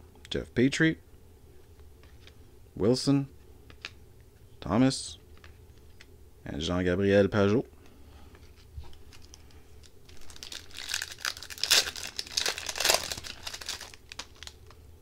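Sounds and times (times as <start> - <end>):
foil wrapper tearing and crinkling: 9.1 - 14.8.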